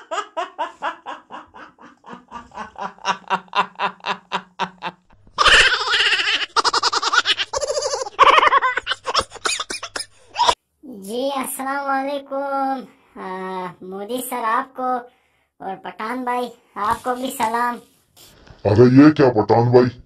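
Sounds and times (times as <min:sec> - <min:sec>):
man laughing hard: 0:00.0 - 0:10.6.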